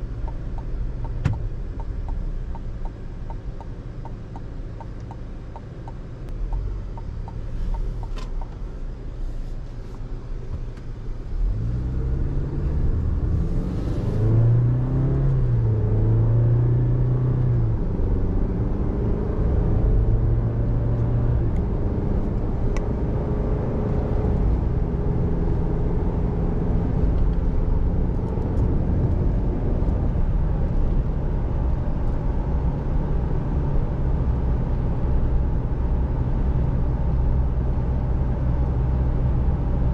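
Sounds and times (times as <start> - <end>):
road hum: 0.0 - 39.9
pickup engine accelerating through gears: 10.7 - 39.9.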